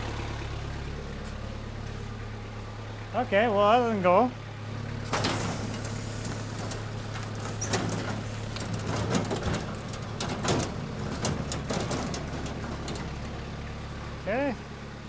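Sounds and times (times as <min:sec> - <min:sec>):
loader engine idling: 0:00.0 - 0:15.0
knocks and scrapes: 0:05.0 - 0:13.6.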